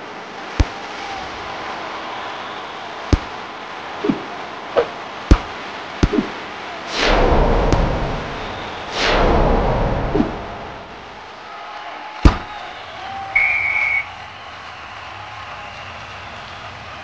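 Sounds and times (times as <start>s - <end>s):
volleyball being struck: 0.6s - 0.9s, 3.1s - 3.4s, 4.0s - 6.4s, 12.2s - 12.6s
rushing swells of noise: 4.0s - 11.4s.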